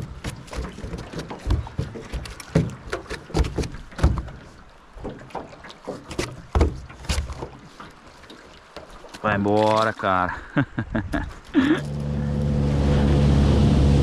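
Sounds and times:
knocks and bumps in a boat: 0.0s - 10.2s
water splashing: 0.0s - 14.0s.

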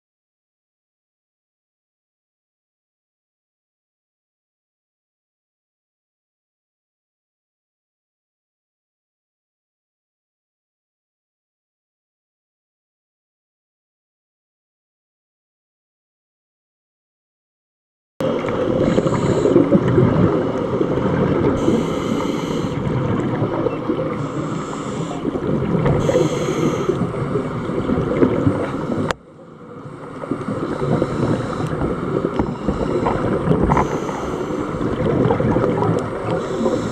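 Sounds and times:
underwater breathing bubbles: 18.2s - 36.9s
regulator hiss: 18.7s - 19.8s, 21.5s - 22.9s, 24.2s - 27.7s, 30.5s - 34.9s, 36.2s - 36.9s.

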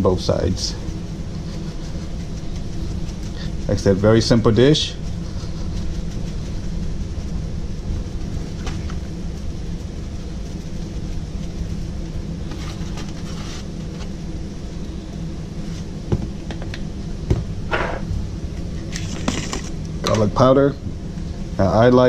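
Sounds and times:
pepper shaker shaking: 0.0s - 13.3s
steady low hum: 0.0s - 22.0s.

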